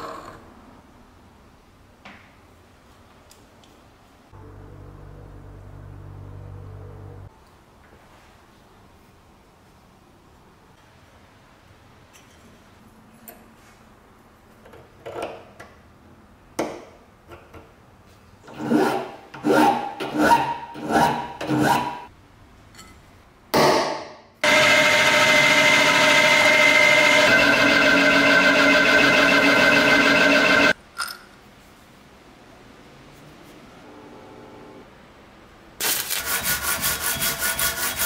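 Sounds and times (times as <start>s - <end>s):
machine spindle humming: 24.4s - 30.8s
hand file rasping on steel: 36.2s - 38.0s.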